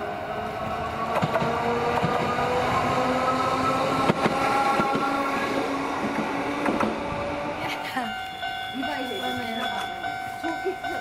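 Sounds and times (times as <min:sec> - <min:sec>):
tram motor whine rising: 0:00.0 - 0:07.7
wheels clacking on track: 0:01.0 - 0:11.0.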